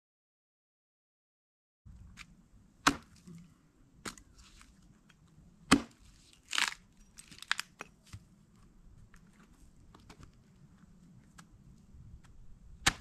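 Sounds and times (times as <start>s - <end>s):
axe chopping wood: 2.8s - 3.3s, 5.7s - 6.8s, 12.2s - 13.0s
wood splitting crackle: 4.0s - 8.2s.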